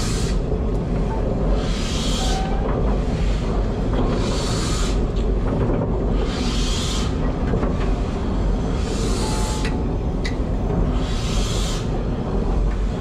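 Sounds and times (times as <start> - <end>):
steam locomotive hissing: 1.3 - 5.2, 8.1 - 12.5
locomotive low rumble: 7.1 - 13.0.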